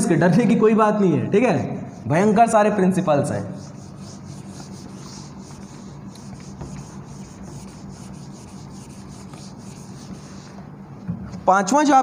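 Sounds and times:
duster scrubbing a whiteboard: 0:01.8 - 0:10.7.

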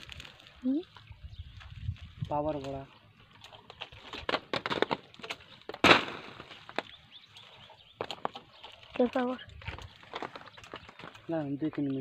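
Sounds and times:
plastic tarpaulin rustling and crackling: 0:00.0 - 0:12.0
loud tarpaulin crack: 0:02.2 - 0:07.0.

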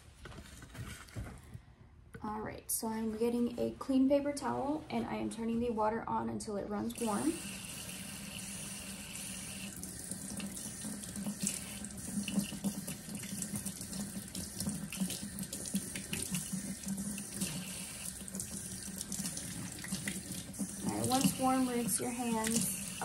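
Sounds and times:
faucet running into sink: 0:07.0 - 0:23.0.

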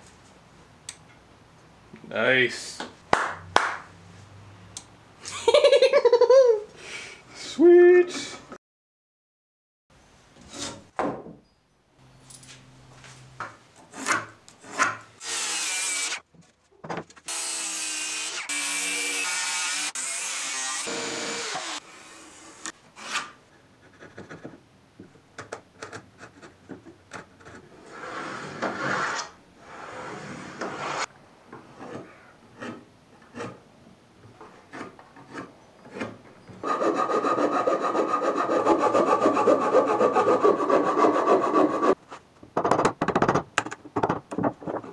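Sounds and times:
chisel cutting wood: 0:31.7 - 0:33.6, 0:34.4 - 0:42.0
knocks and taps on wood: 0:42.4 - 0:44.9.

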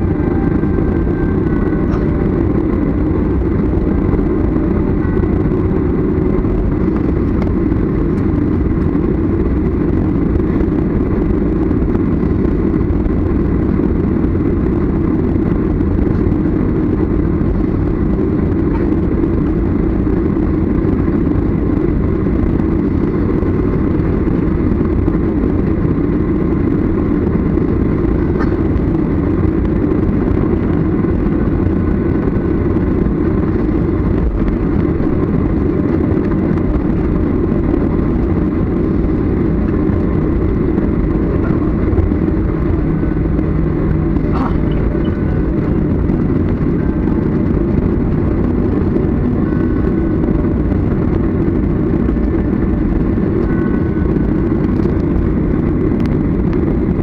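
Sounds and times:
jet airliner cabin rumble: 0:00.0 - 0:57.0.

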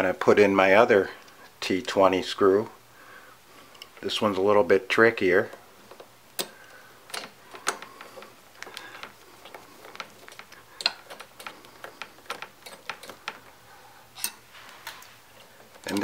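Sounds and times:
small metal clicks and taps: 0:05.5 - 0:13.6.

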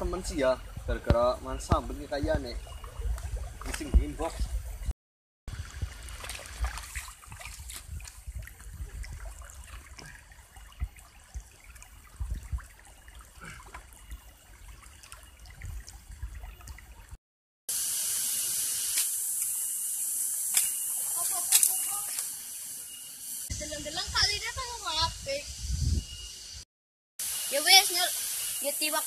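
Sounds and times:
water trickling: 0:00.0 - 0:04.8, 0:05.5 - 0:17.2
loud steady hiss: 0:17.7 - 0:26.6, 0:27.2 - 0:29.0.

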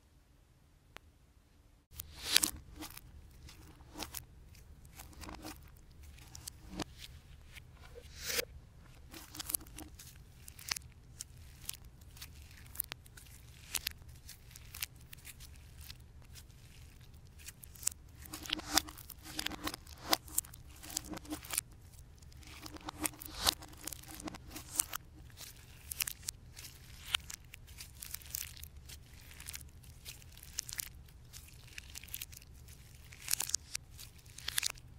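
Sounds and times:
slime squished by hand: 0:09.0 - 0:34.9.

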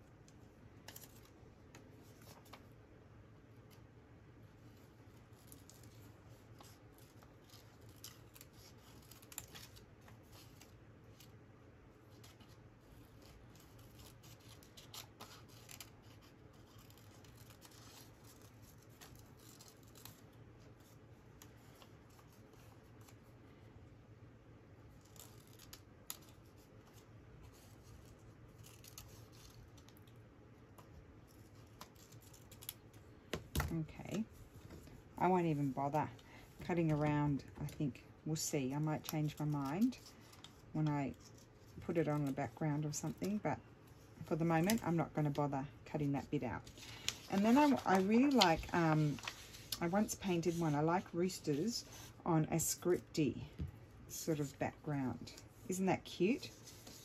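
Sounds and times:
scissors snipping paper: 0:13.1 - 0:20.2, 0:25.0 - 0:30.1.

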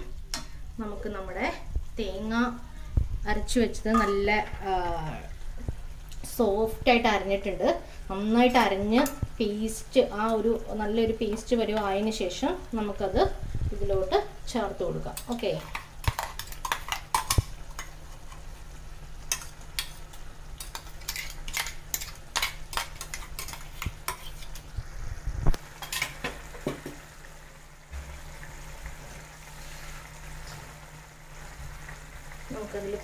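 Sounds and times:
curry simmering: 0:09.3 - 0:33.0
spoon scraping steel bowl: 0:20.6 - 0:24.6.

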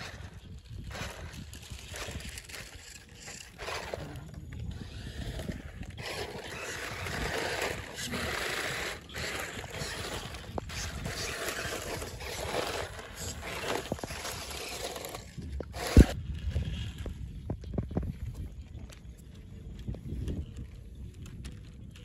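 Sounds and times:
tyres churning through mud: 0:00.0 - 0:16.2
small electric motors whirring: 0:00.0 - 0:22.0.

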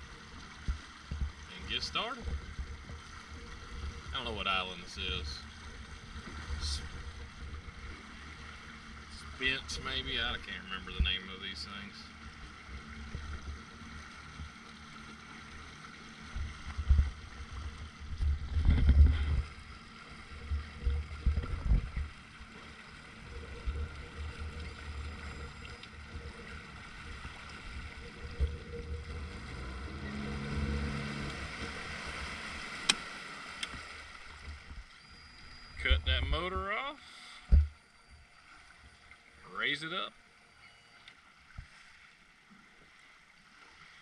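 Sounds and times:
outboard motor running: 0:00.0 - 0:44.0
wind noise on microphone: 0:16.4 - 0:19.7, 0:20.4 - 0:22.2.

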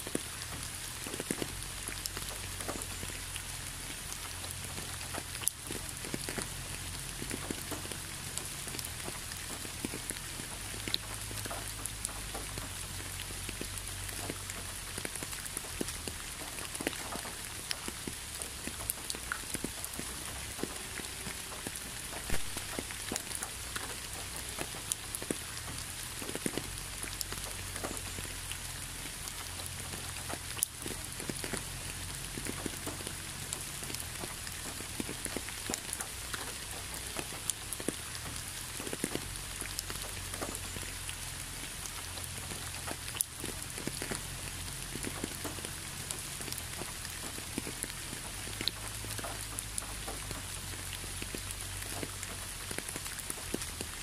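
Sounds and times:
raindrop taps: 0:00.0 - 0:54.0
steady rain hiss: 0:00.0 - 0:54.0.

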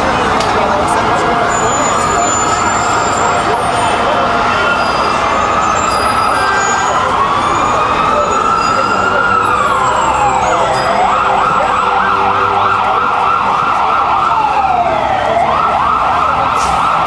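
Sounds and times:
emergency siren wailing and yelping: 0:00.8 - 0:17.0.

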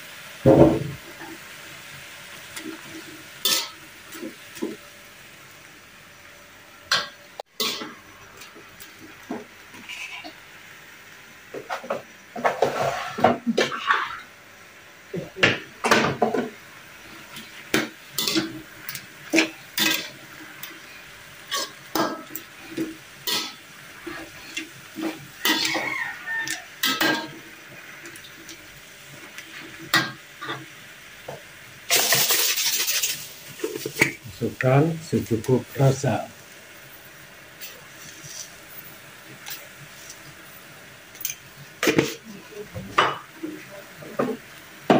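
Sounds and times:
metal spatula scraping wok: 0:09.7 - 0:10.4, 0:12.4 - 0:14.3, 0:18.1 - 0:18.6, 0:19.3 - 0:20.2, 0:20.8 - 0:27.4.

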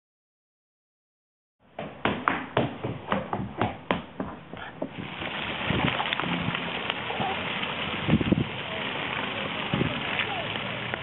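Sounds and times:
hands slapping hardwood floor: 0:01.7 - 0:05.0
water spray hissing: 0:04.6 - 0:11.0.

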